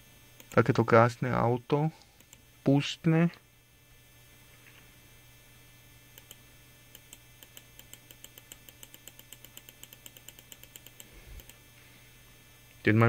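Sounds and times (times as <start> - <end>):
mouse scroll wheel clicking: 6.2 - 11.6.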